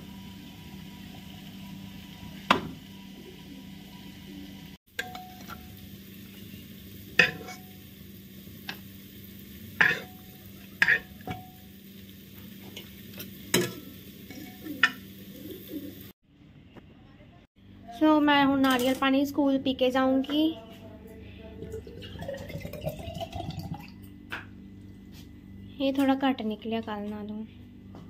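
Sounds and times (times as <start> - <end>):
steady low hum: 20.5 - 28.0.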